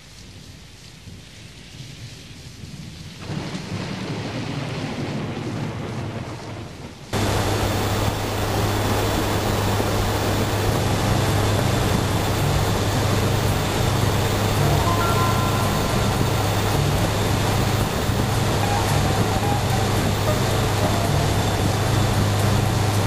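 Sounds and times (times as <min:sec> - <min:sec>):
rain: 0:00.0 - 0:23.0
thunder: 0:01.9 - 0:23.0
turboprop engines droning: 0:07.2 - 0:23.0.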